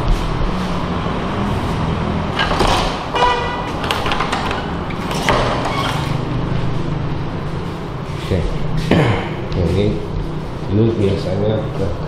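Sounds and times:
steady low hum: 0.0 - 12.0
garage door scraping and knocking: 2.3 - 6.4.

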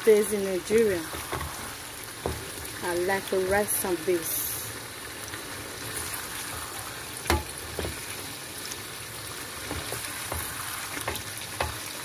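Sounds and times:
chicken sizzling in a frying pan: 0.0 - 12.0
wooden spoon knocking against pan: 2.2 - 2.5, 7.3 - 8.0, 9.6 - 11.8.

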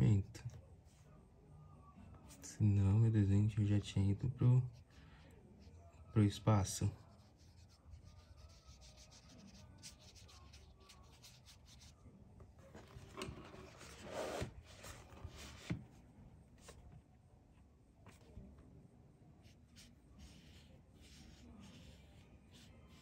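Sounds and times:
brush strokes on paper: 6.6 - 12.0, 19.4 - 23.0.

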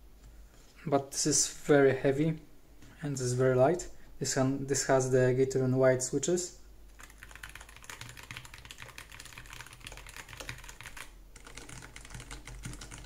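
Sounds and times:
fast keyboard typing: 6.9 - 13.0.

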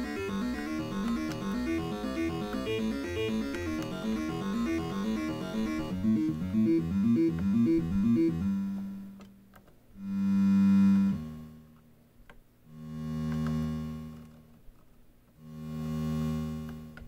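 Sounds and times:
synthesizer arpeggio: 0.0 - 9.0
synthesizer held notes: 0.0 - 9.0.

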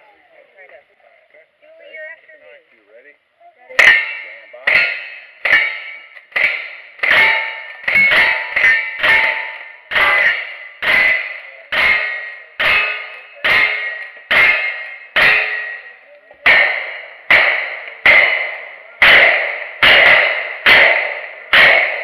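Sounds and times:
ringing of struck steel targets: 3.7 - 22.0
rapid gunshots: 16.4 - 22.0.

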